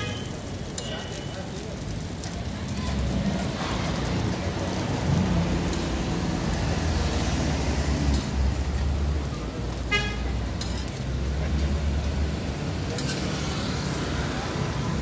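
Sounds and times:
meat sizzling on griddle: 0.0s - 15.0s
spatula scraping griddle: 10.5s - 11.7s, 12.8s - 13.7s.

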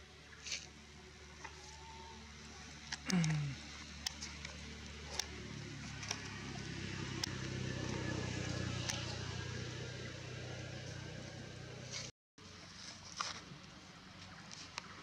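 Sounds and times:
low steady engine hum: 0.0s - 15.0s.

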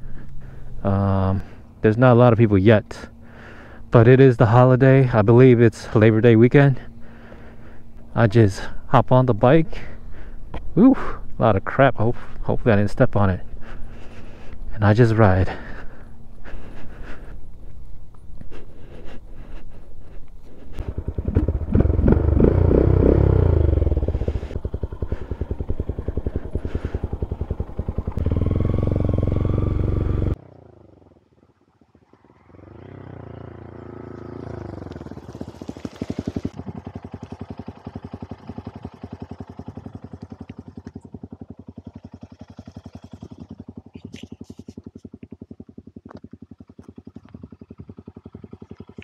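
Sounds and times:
motorcycle engine revving: 20.0s - 49.0s.

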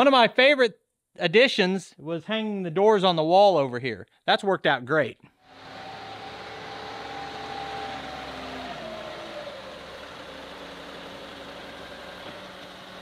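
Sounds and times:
diesel tractor engine running: 5.5s - 13.0s.

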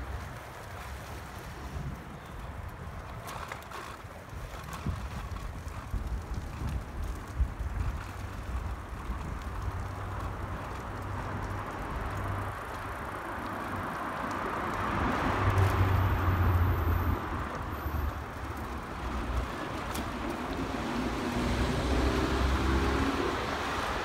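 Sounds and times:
cars passing: 7.9s - 24.0s.

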